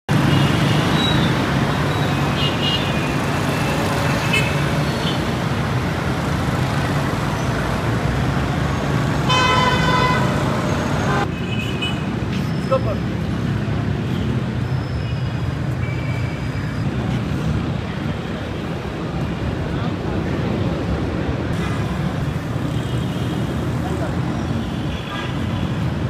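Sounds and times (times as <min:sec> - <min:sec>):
busy road traffic: 0:00.0 - 0:26.0
car horn toots: 0:09.3 - 0:10.4.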